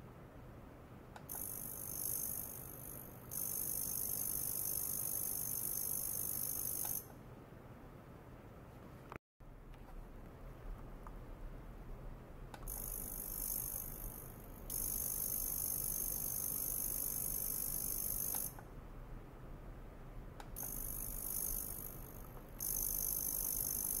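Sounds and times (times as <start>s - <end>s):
high-pitched ultrasonic hiss: 1.3s - 7.1s, 12.6s - 18.7s, 20.6s - 24.0s.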